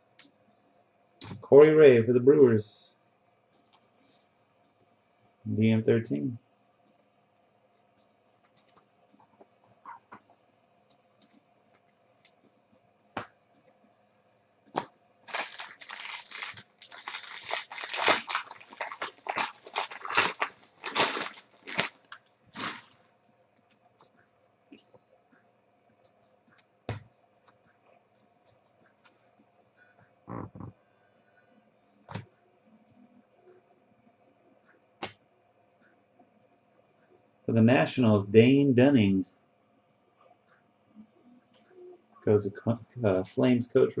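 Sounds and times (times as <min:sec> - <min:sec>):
plastic wrapper crinkling and tearing: 0:14.8 - 0:23.0.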